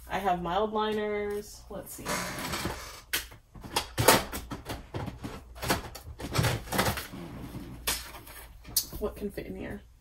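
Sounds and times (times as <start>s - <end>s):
stationery knocking and rustling: 2.4s - 9.1s.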